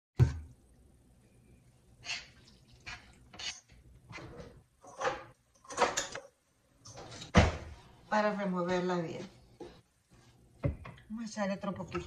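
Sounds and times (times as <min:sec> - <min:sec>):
spoon scraping a metal pan: 0:02.0 - 0:04.3.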